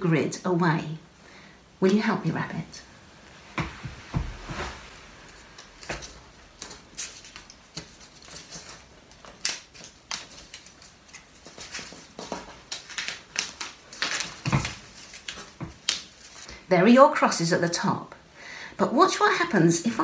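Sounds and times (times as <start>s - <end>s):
tape rustling and crinkling: 3.2s - 16.6s.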